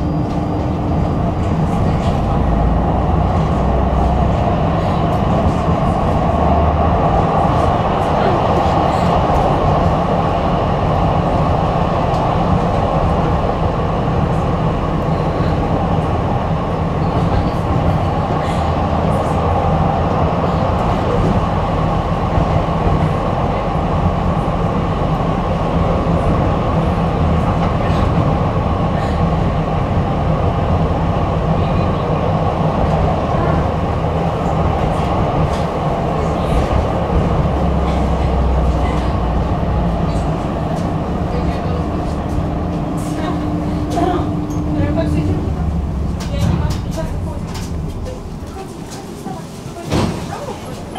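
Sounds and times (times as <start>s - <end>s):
tram wheels rumbling on rail: 0.0s - 50.9s.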